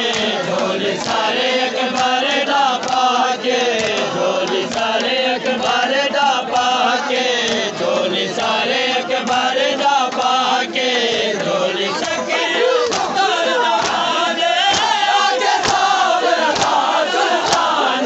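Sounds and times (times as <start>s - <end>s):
hands slapping chests: 0.0s - 5.9s, 7.4s - 8.5s, 9.3s - 10.4s, 12.8s - 17.8s
men chanting a lament: 0.0s - 18.0s.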